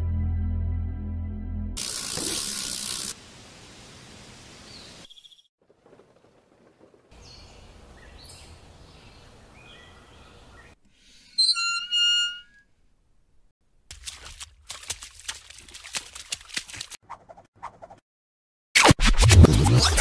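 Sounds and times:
background hiss: 0:01.8 - 0:05.1
birds chirping: 0:04.6 - 0:10.8.

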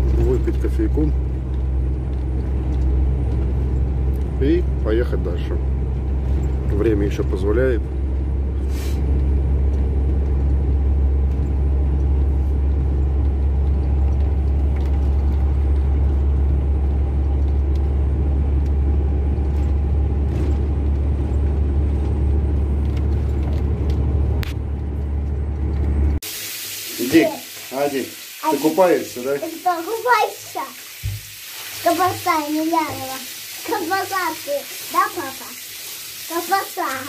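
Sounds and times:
truck diesel engine drone: 0:00.0 - 0:26.2
road noise: 0:00.0 - 0:37.0.

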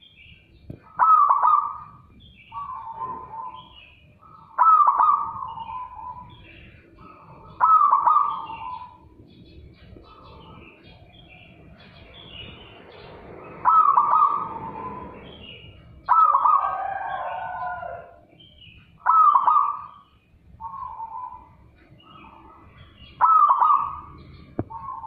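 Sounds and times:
high-pitched bird chirping: 0:00.0 - 0:25.0
dove cooing: 0:00.7 - 0:11.6, 0:13.5 - 0:18.2, 0:19.0 - 0:20.0, 0:20.6 - 0:21.6, 0:23.0 - 0:25.0.

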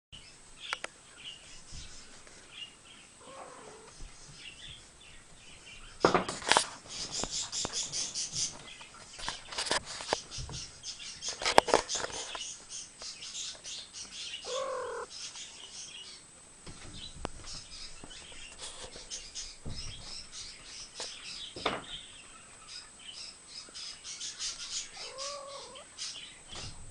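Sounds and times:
small animals chirping: 0:14.1 - 0:15.6, 0:24.2 - 0:26.2
short pitched cry: 0:14.5 - 0:15.1.

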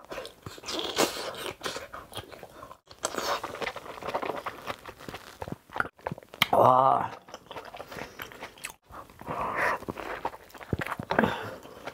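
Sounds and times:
chewing with wet crunches: 0:07.1 - 0:11.9.

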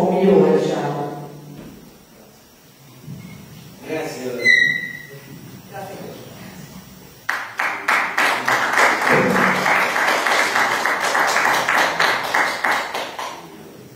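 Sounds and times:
audience applauding: 0:07.3 - 0:13.9.

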